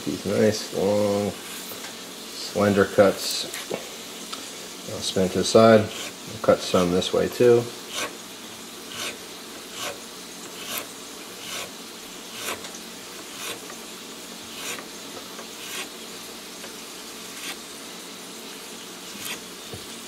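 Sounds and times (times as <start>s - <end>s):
knife slicing on cutting board: 7.9s - 8.2s, 8.9s - 11.7s, 12.3s - 12.7s, 13.3s - 13.7s, 14.5s - 14.9s, 15.5s - 16.0s, 17.3s - 17.6s, 19.1s - 19.5s.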